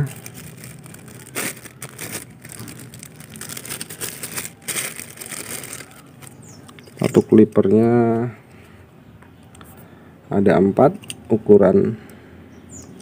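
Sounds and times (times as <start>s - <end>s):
plastic combs rustling: 0.0s - 7.7s.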